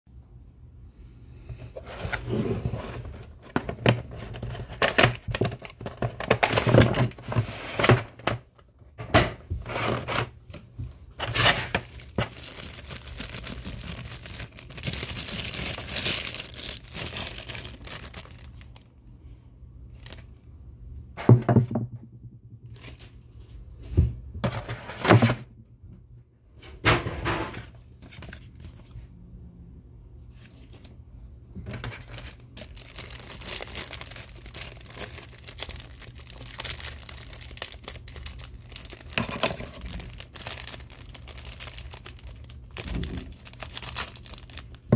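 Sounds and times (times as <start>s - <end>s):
plastic wrapping crinkling: 3.0s - 8.3s, 11.1s - 18.9s, 19.9s - 20.4s, 22.7s - 23.4s, 31.6s - 44.9s.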